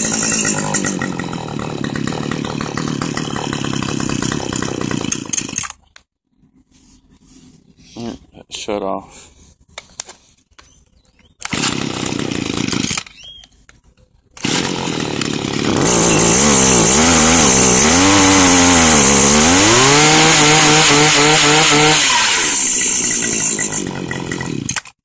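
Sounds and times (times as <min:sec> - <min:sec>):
hedge trimmer engine revving: 0:00.0 - 0:05.8, 0:11.4 - 0:13.4, 0:14.4 - 0:24.9
pull starter: 0:00.0 - 0:05.9, 0:11.4 - 0:13.6, 0:14.3 - 0:25.0.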